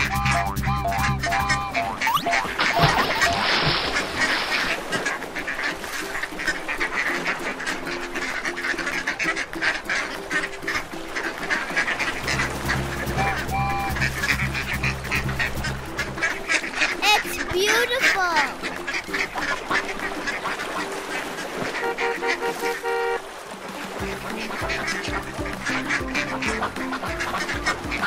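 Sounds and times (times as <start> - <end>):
background music with low bass: 0.0 - 2.9, 12.0 - 20.0, 24.0 - 28.0
cartoon duck quacking: 0.0 - 3.4, 13.1 - 20.5, 24.1 - 28.0
water splash: 0.0 - 28.0.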